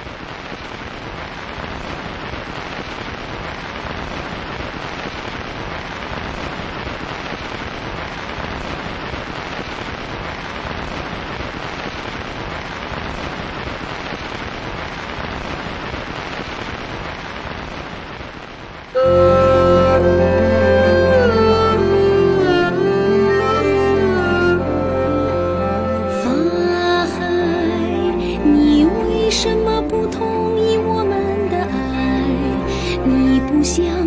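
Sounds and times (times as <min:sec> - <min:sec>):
steady rain: 0:00.0 - 0:34.0.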